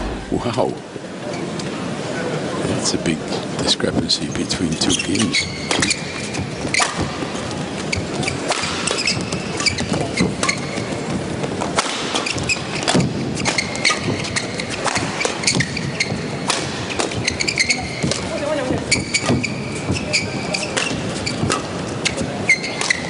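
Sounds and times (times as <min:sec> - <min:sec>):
shoes squeaking on court: 0:04.6 - 0:23.0.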